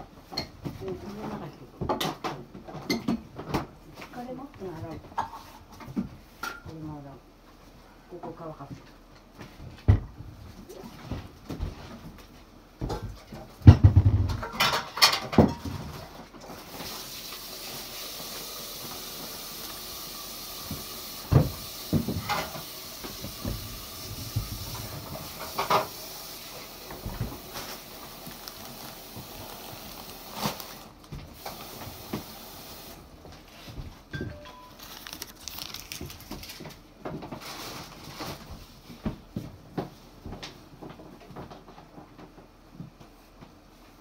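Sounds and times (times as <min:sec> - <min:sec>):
knocks and thumps: 0:12.8 - 0:14.6
steady hiss: 0:16.6 - 0:33.1.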